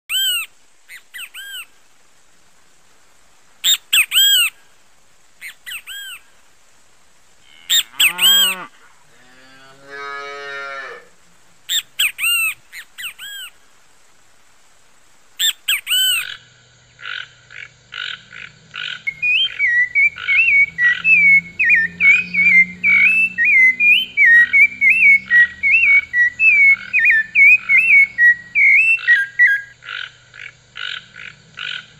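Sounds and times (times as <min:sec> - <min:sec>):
bird warbling song: 0:00.1 - 0:01.7, 0:03.6 - 0:04.6, 0:05.4 - 0:06.2, 0:11.7 - 0:13.6, 0:15.4 - 0:16.4, 0:18.0 - 0:31.9
bird whistled calls: 0:00.1 - 0:01.7, 0:03.6 - 0:04.5, 0:05.4 - 0:06.2, 0:11.7 - 0:13.5, 0:15.4 - 0:16.3, 0:19.1 - 0:29.8
short rattling croak: 0:15.4 - 0:19.1, 0:29.8 - 0:31.9.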